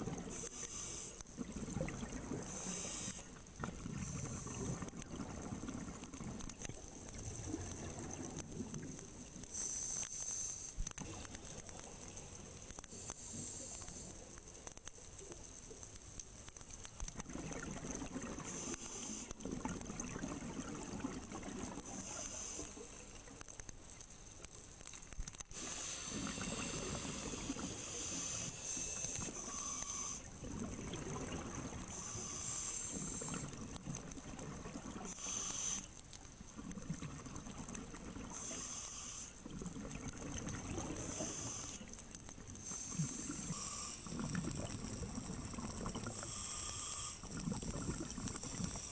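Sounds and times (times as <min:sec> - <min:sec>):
regulator hissing inhalations: 0:00.3 - 0:01.2, 0:25.5 - 0:30.2, 0:31.9 - 0:33.5, 0:46.1 - 0:47.2.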